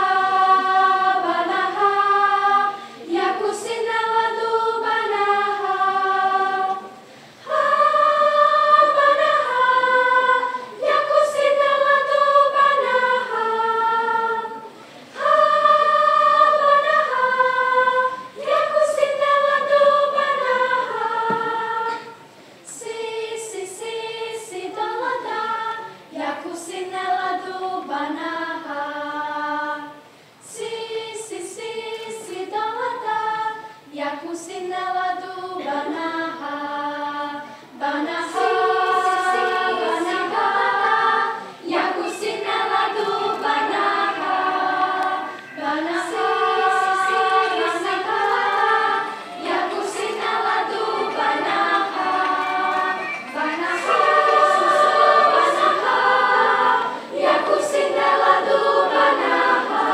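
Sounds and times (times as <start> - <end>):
children's choir singing: 0.0 - 59.9
short sharp accents: 52.0 - 55.0.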